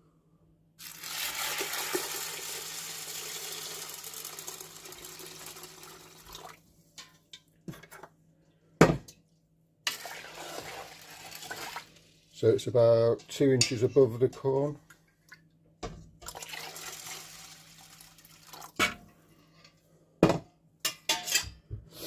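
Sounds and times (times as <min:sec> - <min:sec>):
water pouring into a pot: 0:00.8 - 0:06.7, 0:09.9 - 0:12.3, 0:16.2 - 0:18.8.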